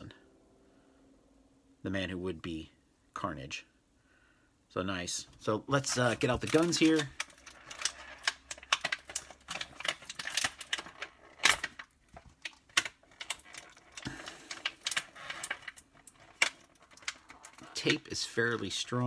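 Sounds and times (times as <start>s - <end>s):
plastic bag crinkling: 5.8s - 19.0s.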